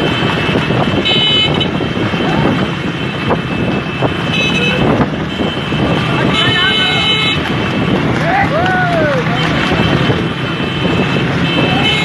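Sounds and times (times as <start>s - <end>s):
vehicle horn blasts: 0.0s - 2.0s, 3.2s - 7.9s, 9.5s - 12.0s
vehicle engine and road noise: 0.0s - 12.0s.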